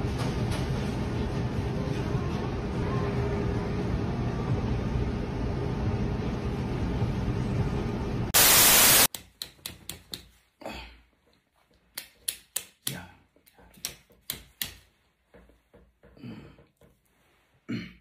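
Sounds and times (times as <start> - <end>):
static-like hiss burst: 8.3 - 9.1.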